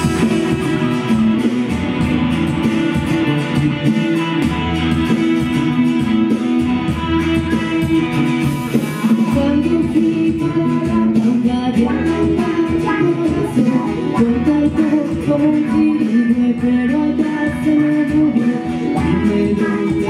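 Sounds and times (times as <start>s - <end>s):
acoustic guitar: 0.0s - 20.0s
bass guitar: 0.0s - 20.0s
electric guitar: 0.0s - 20.0s.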